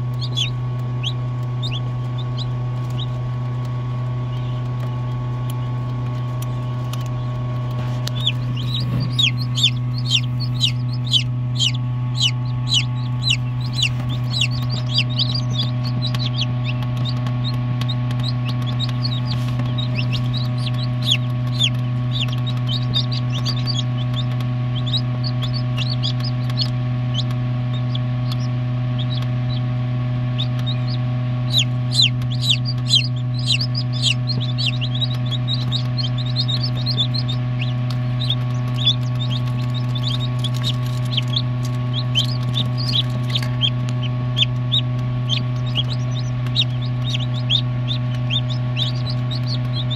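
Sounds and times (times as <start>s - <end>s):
chick peeping: 0.0s - 49.9s
low hum of incubator: 0.0s - 49.9s.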